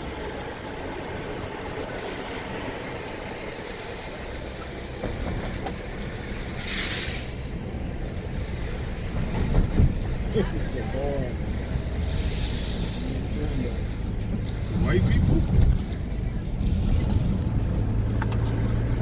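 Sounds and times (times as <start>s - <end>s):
car road and engine rumble: 0.0s - 19.0s
brief hiss: 6.6s - 7.5s, 12.0s - 13.2s.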